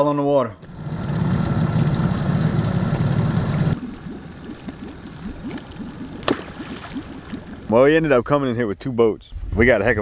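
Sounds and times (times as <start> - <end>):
engine idling: 0.6 - 7.7.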